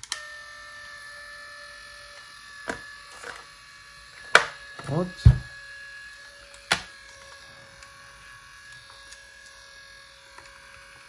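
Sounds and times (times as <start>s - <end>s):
cassette motor whine: 0.0s - 11.0s
heavy thump: 5.3s - 5.5s.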